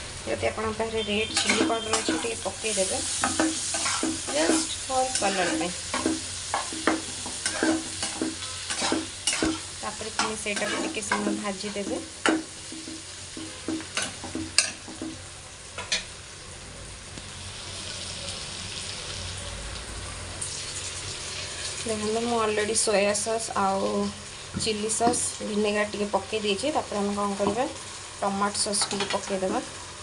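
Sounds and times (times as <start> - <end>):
food sizzling: 0.0 - 30.0
spoon scraping a pan: 1.0 - 15.2, 21.3 - 21.8.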